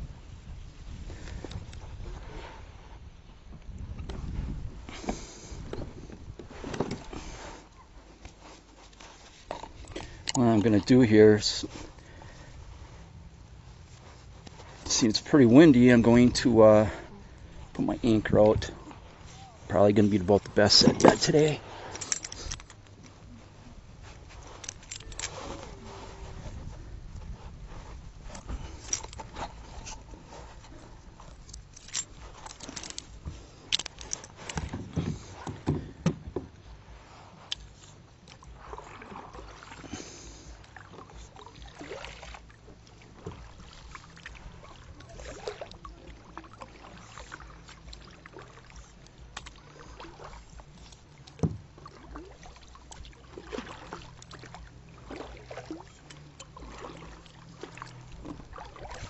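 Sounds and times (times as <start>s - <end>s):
paddle splashing water: 0.0s - 59.0s
paddle knocking plastic hull: 34.6s - 36.7s, 51.3s - 52.3s.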